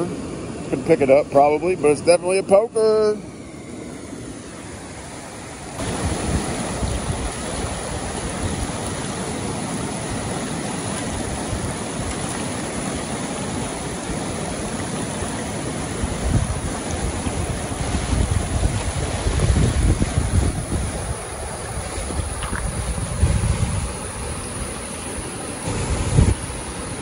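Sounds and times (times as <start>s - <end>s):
river water rushing: 0.0s - 27.0s
wind buffeting microphone: 5.8s - 12.4s, 15.8s - 24.9s, 25.6s - 26.7s.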